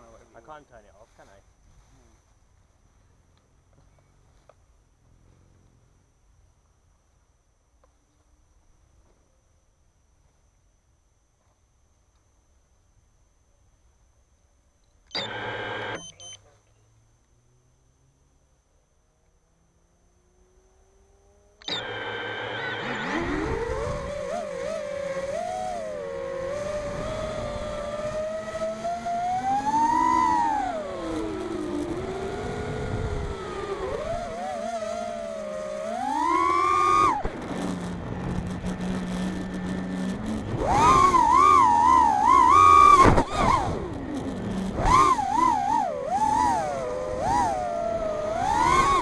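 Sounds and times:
drone motors and propellers whining: 0:15.1 - 0:16.4, 0:19.2 - 0:49.0.

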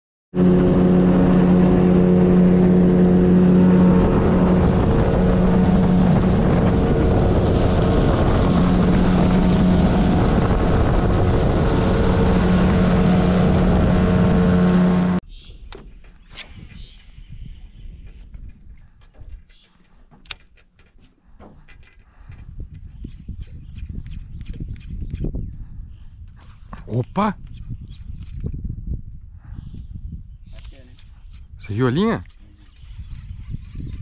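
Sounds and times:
wind: 0:00.3 - 0:34.0
outboard motor running: 0:00.4 - 0:15.2.

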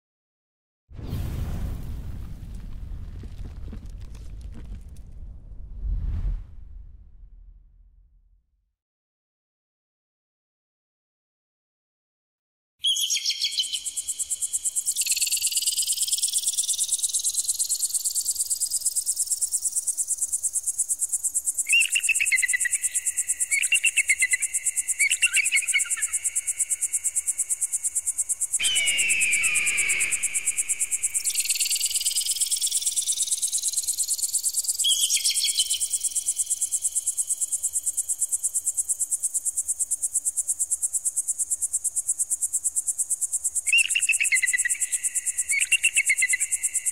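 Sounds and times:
pulsing shrill electronic tone: 0:28.6 - 0:30.7
falling electronic screech: 0:28.6 - 0:30.8
chopped chirping tones: 0:28.6 - 0:32.5.

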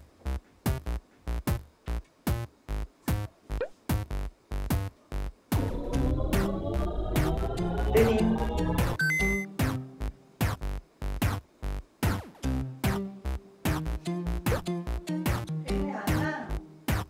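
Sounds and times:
rising synth sweep: 0:05.5 - 0:09.4
electronic music with drum machine: 0:05.5 - 0:09.8
short high beeps: 0:07.6 - 0:09.5.

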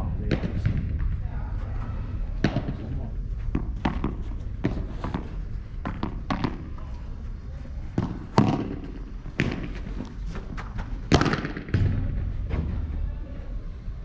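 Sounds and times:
balls bouncing on court: 0:00.0 - 0:07.1, 0:07.8 - 0:13.0
padel balls struck with rackets: 0:02.4 - 0:07.0, 0:07.9 - 0:10.1, 0:11.1 - 0:12.5.

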